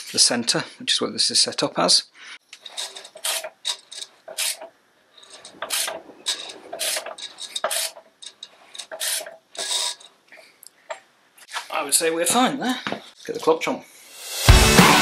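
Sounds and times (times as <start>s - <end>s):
flywheel scraping rub: 2.6s - 10.5s.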